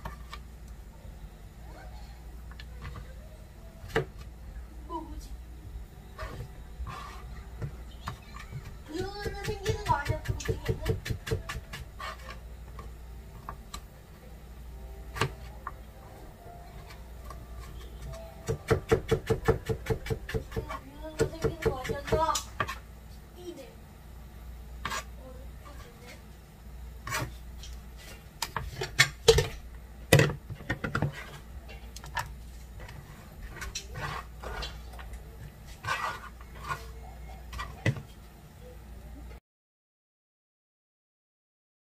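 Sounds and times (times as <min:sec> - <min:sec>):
knife chopping on plastic board: 0:07.6 - 0:12.3, 0:18.0 - 0:22.8, 0:30.1 - 0:31.4.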